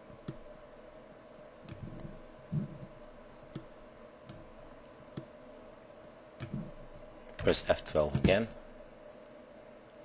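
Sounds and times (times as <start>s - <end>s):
faint steady hum: 0.0s - 10.0s
computer mouse clicks: 0.2s - 0.5s, 1.6s - 2.1s, 3.5s - 4.5s, 5.1s - 5.4s.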